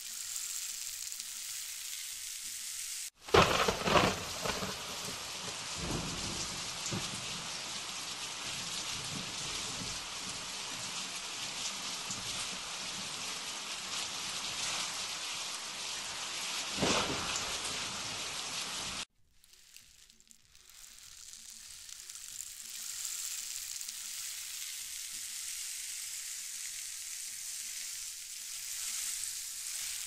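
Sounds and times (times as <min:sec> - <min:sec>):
steady rain: 0:00.0 - 0:30.0
thunder: 0:03.2 - 0:10.6, 0:16.8 - 0:18.4.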